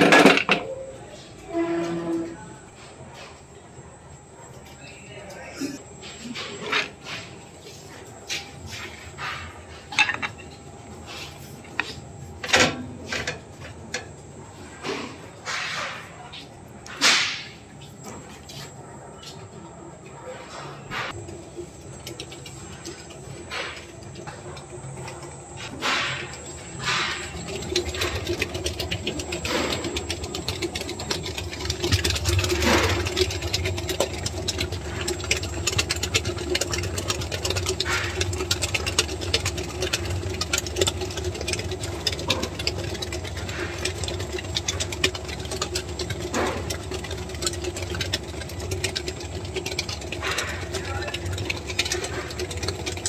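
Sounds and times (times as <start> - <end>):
mixer beater rattling: 0.0 - 0.7, 21.1 - 53.0
mixer motor humming: 21.1 - 53.0.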